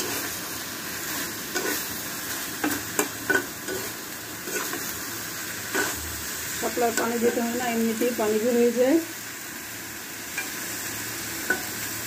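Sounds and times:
metal spatula scraping a pan: 0.0 - 0.4, 1.0 - 5.0, 5.6 - 6.1
food sizzling in a pan: 0.0 - 12.0.

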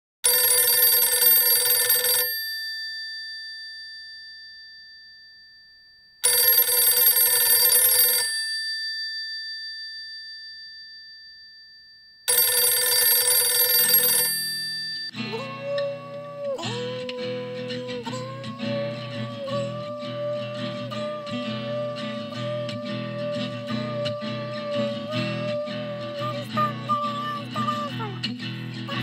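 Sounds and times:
telephone bell ringing: 0.2 - 15.2.

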